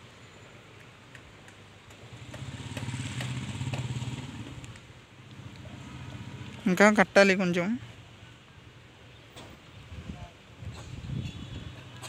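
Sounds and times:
vehicle engine passing by: 0:02.0 - 0:06.8.

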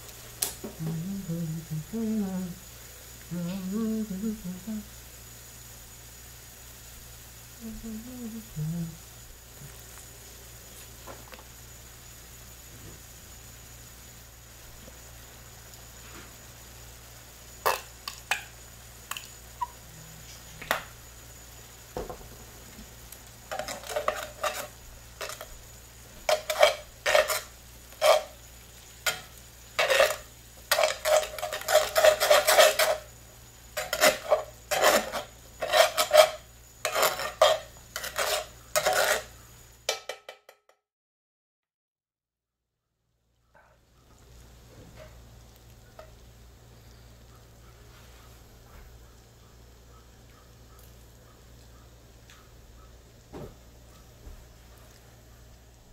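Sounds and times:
spatula scraping a skillet: 0:17.6 - 0:18.5, 0:22.8 - 0:39.5.

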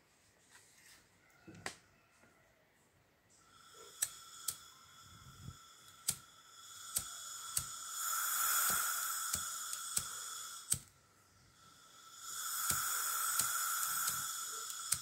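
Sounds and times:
gas hissing from torch nozzle: 0:03.5 - 0:15.0
sharp clicks: 0:03.9 - 0:04.6, 0:05.9 - 0:11.0, 0:12.5 - 0:15.0.

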